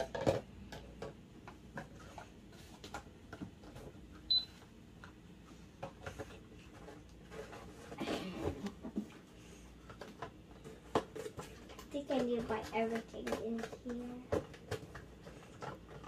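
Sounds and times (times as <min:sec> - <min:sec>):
toy cash register beep: 0:04.3 - 0:04.5.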